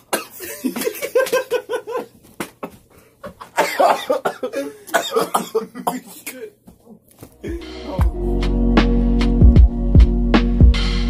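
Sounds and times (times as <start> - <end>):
man coughing: 0.0 - 1.6, 3.4 - 6.6
man laughing: 0.3 - 6.2.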